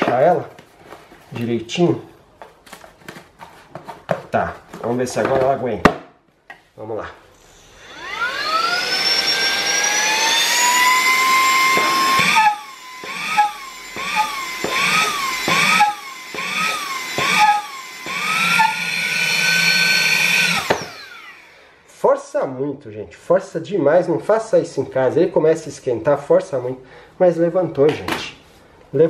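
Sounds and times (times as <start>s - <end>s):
mini vacuum cleaner whining: 7.4s - 21.8s.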